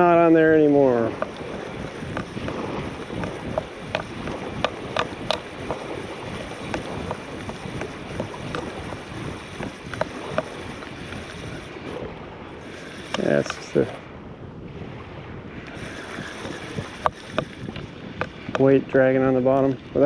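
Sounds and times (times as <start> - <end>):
wind noise on microphone: 0.0 - 20.0
fishing reel clicking: 1.0 - 12.0, 12.6 - 14.0, 15.7 - 18.7.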